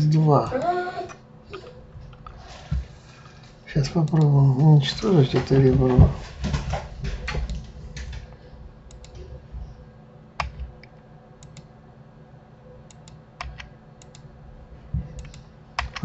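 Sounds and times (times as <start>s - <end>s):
faint steady hum: 0.0s - 16.0s
keyboard and mouse clicks: 7.2s - 9.3s, 10.4s - 11.7s, 12.9s - 14.3s, 15.2s - 16.0s.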